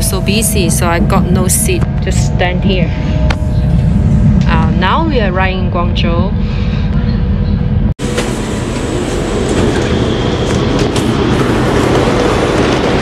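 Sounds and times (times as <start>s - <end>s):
train rumble and hiss: 8.0s - 13.0s.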